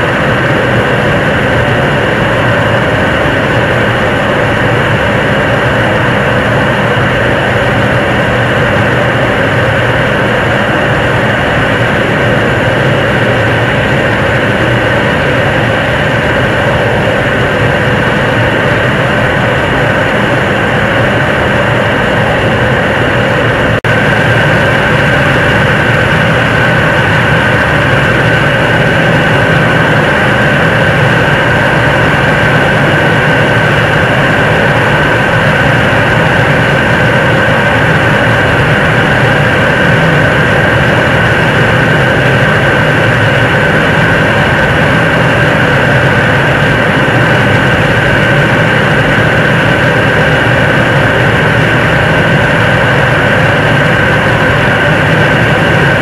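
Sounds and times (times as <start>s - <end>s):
high whine: 0.0s - 56.0s
rocket engine firing: 0.0s - 56.0s.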